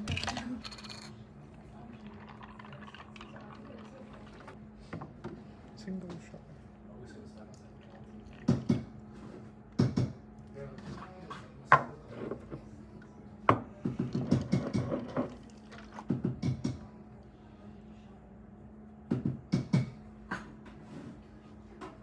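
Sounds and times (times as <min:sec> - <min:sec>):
cups and milk jug clattering: 0:00.0 - 0:05.2, 0:07.9 - 0:09.0, 0:13.5 - 0:16.9
steady low hum: 0:00.0 - 0:22.0.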